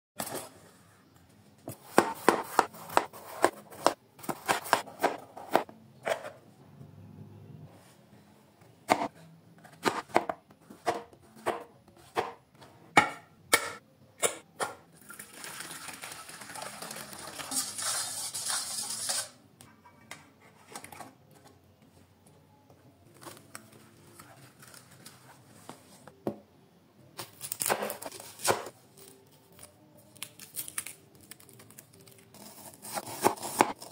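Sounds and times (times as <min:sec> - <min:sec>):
knife slicing onion: 0:01.7 - 0:06.3, 0:08.8 - 0:12.4, 0:27.2 - 0:28.7, 0:32.4 - 0:33.9
hot water pouring into bowl: 0:15.0 - 0:17.9.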